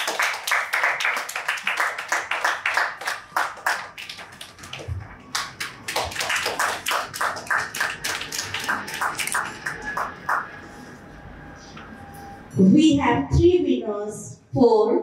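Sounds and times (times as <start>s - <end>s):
audience applauding: 0.0s - 10.8s.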